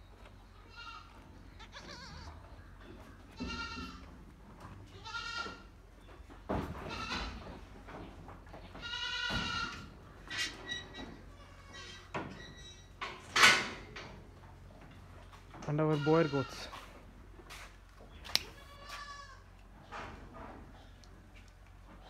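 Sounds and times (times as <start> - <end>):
goats bleating: 0.5 - 2.5, 3.3 - 4.1, 4.8 - 5.7, 8.7 - 9.9, 11.2 - 12.1, 15.8 - 16.8, 18.4 - 19.6.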